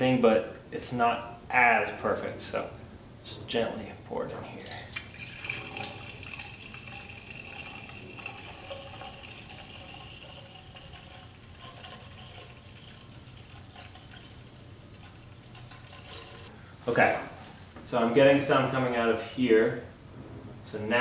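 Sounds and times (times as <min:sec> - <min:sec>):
liquid pouring into tank: 0:04.5 - 0:16.6.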